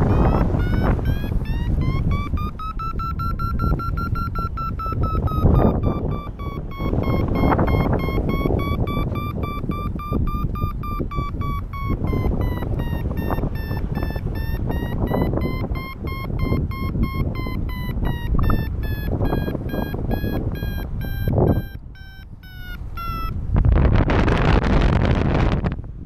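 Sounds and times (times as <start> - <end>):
variometer beeping: 0.0 - 23.6
wind on microphone: 0.0 - 26.0.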